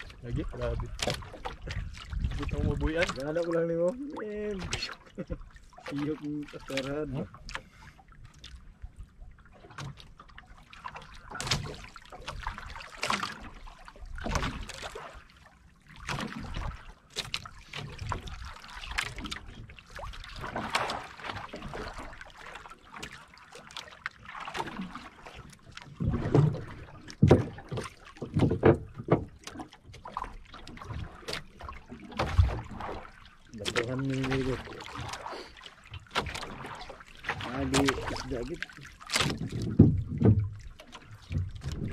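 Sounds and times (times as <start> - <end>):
water slapping against boat hull: 0.0 - 41.9
heavy knocks on boat: 25.9 - 30.9, 39.1 - 41.9.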